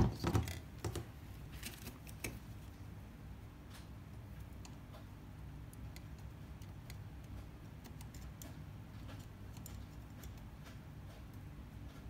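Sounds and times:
low steady hum: 0.0 - 12.0
soldering ticks and clicks: 3.7 - 12.0.

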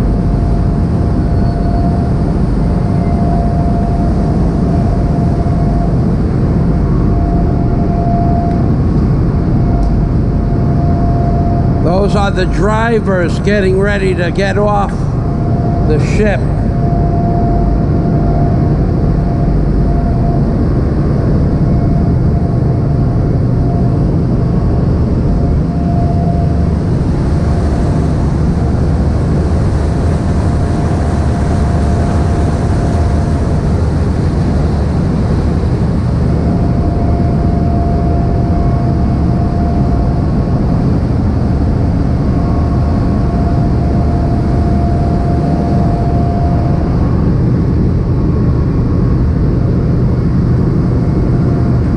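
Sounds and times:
ship engine low rumble: 0.0 - 51.9
thin steady whine: 0.0 - 51.9
churning wake water: 25.6 - 46.7.

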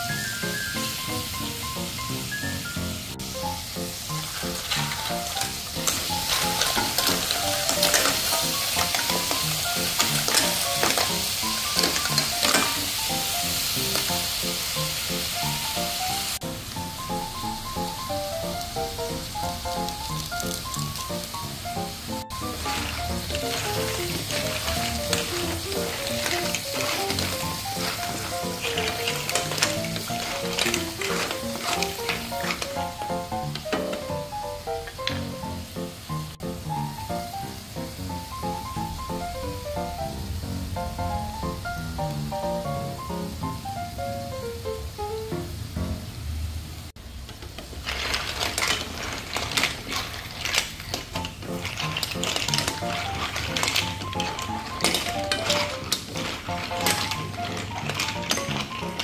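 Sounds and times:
background music: 0.0 - 46.1, 51.2 - 59.0
wok sizzling: 0.0 - 59.0
clams clattering into a wok: 4.0 - 15.6, 18.4 - 35.4, 47.2 - 59.0.

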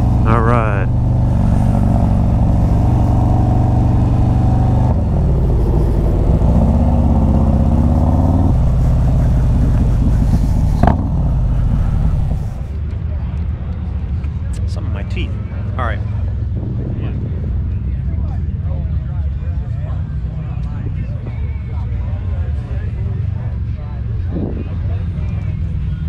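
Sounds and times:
motorcycle engine running: 0.0 - 12.8.

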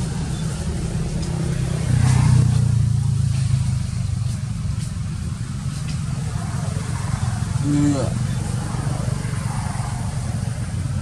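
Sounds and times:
vehicle engine running: 0.0 - 11.0.

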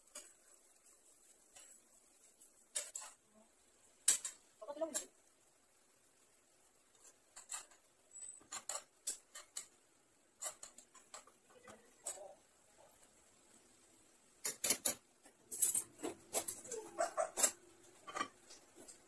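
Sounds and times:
utensil scraping a frying pan: 0.0 - 3.3, 10.4 - 12.1.

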